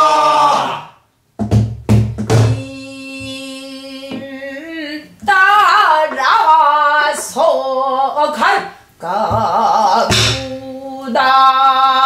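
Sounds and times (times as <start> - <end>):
person singing with vibrato: 2.4 - 12.0
barrel drum strokes: 9.3 - 10.6.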